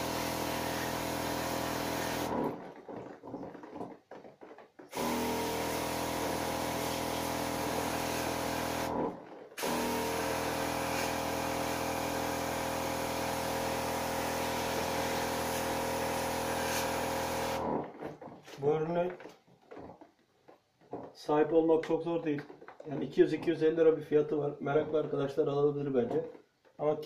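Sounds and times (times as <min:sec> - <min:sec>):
pump motor humming: 0:00.0 - 0:03.4, 0:04.9 - 0:18.2.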